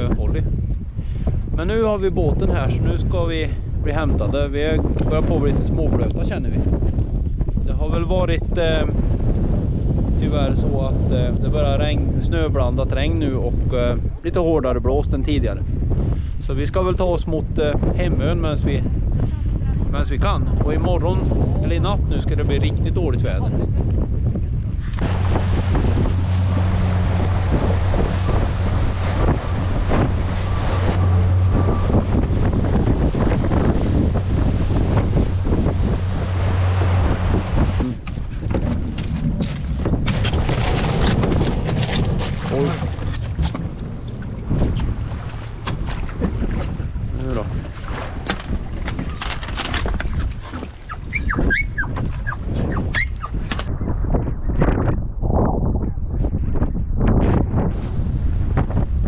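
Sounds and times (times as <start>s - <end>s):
wind buffeting microphone: 0.0s - 59.0s
boat engine humming: 24.8s - 53.4s
rushing water: 24.9s - 52.4s
dog whining: 50.4s - 53.4s.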